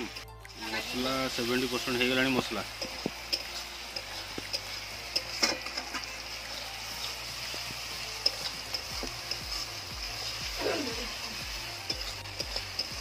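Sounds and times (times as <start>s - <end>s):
onions sizzling in oil: 0.0s - 13.0s
metal spatula scraping pan: 2.0s - 6.4s, 8.1s - 13.0s.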